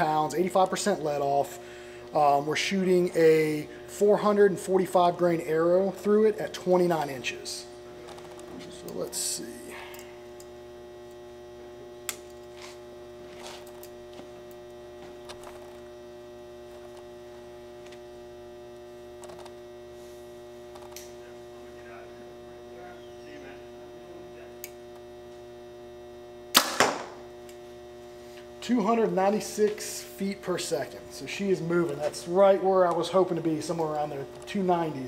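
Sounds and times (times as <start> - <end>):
steady electrical hum: 0.0 - 35.0
compound bow firing snap: 26.5 - 27.2.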